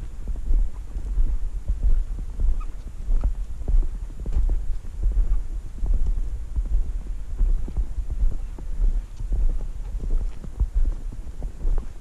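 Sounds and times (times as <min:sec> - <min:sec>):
footsteps in snow: 0:00.0 - 0:12.0
wind on microphone rumble: 0:00.0 - 0:12.0.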